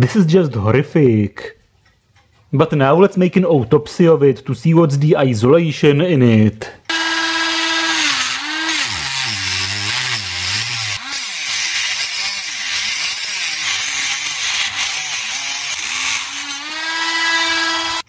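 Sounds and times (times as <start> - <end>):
rotary tool motor whine: 6.9 - 14.9, 15.7 - 18.0
cut-off disc grinding metal: 6.9 - 18.0.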